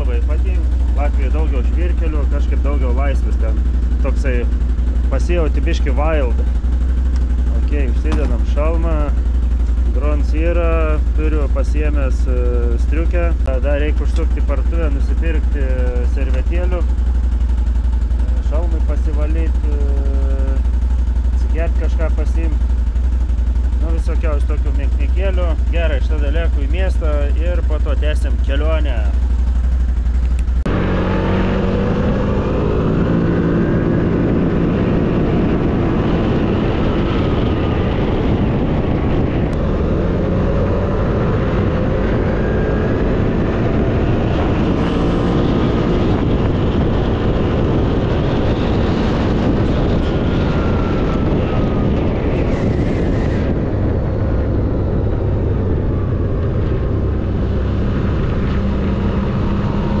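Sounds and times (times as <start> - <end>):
motorcycle engine running: 0.0 - 60.0
wind and tyre noise: 0.0 - 60.0.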